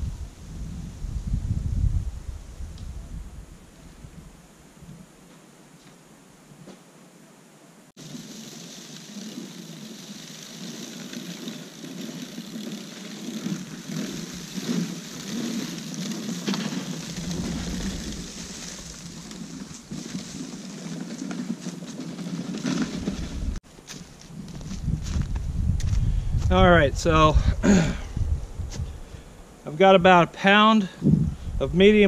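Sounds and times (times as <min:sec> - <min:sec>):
push spreader rattling: 0:08.0 - 0:23.5.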